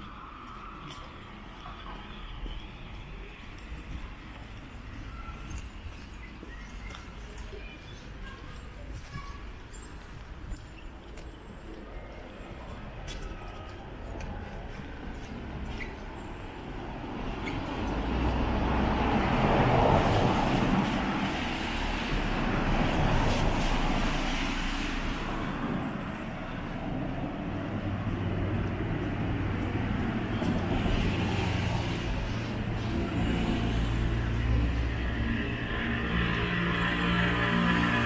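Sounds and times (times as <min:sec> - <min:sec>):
cars passing: 0:11.1 - 0:38.0.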